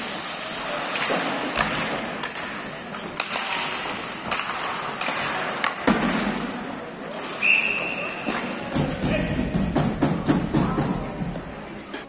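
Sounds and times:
skates scraping ice: 0.0 - 10.3
hockey sticks and puck clacking: 0.0 - 12.0.

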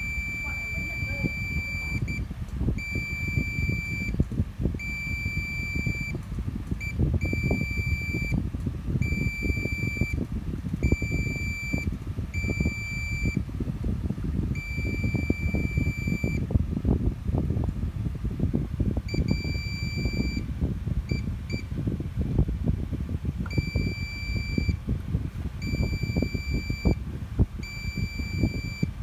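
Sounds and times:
multimeter continuity beeps: 0.0 - 4.2, 4.8 - 6.2, 6.8 - 8.4, 9.0 - 10.2, 10.8 - 13.5, 14.6 - 16.5, 19.1 - 20.5, 21.1 - 21.7, 23.5 - 24.8, 25.6 - 27.0, 27.6 - 29.0.

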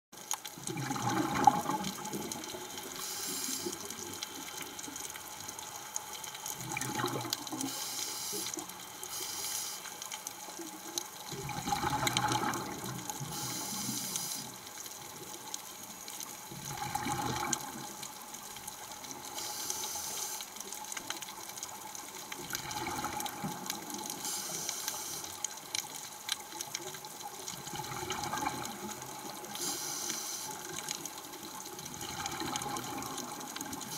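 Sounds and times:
bubbling exhale: 0.7 - 4.8, 6.6 - 9.8, 11.3 - 14.6
regulator hissing inhale: 2.9 - 4.0, 7.6 - 10.0, 13.3 - 14.6, 19.3 - 20.5, 24.2 - 25.4, 29.6 - 30.6.

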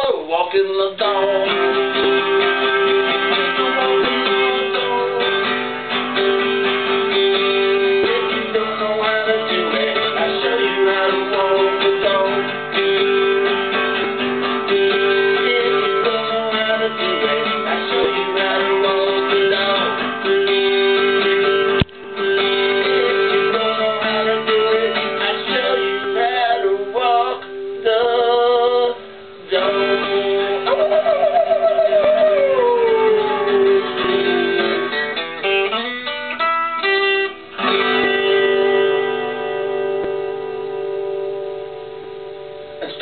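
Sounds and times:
person singing: 0.0 - 5.7, 6.3 - 13.6, 14.6 - 35.0
acoustic guitar playing blues: 0.0 - 43.0.

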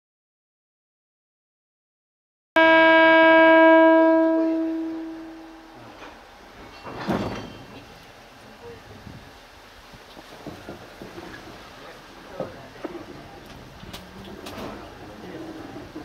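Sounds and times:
train horn long note: 2.6 - 6.0.

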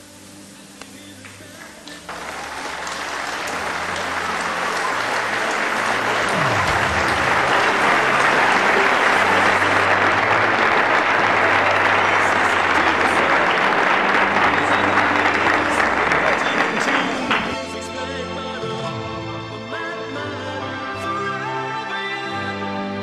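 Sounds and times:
audience applauding: 1.2 - 17.8.

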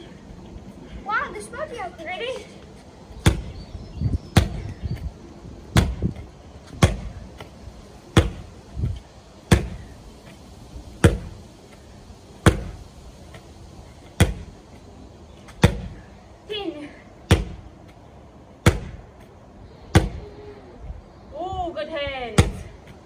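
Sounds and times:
medicine ball smacking wooden deck: 15.6 - 15.9, 17.3 - 17.6, 18.6 - 19.0.

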